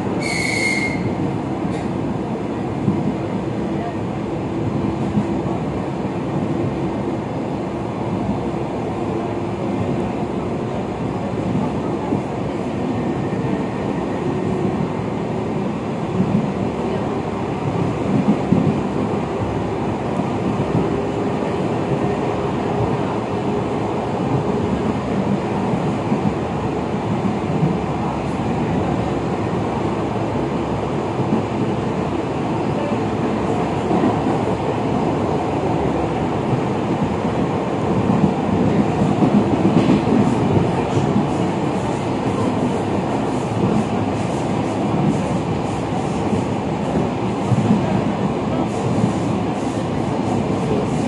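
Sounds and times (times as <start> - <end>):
train wheels rumbling on rails: 0.0 - 51.0
train knocks: 37.9 - 42.5.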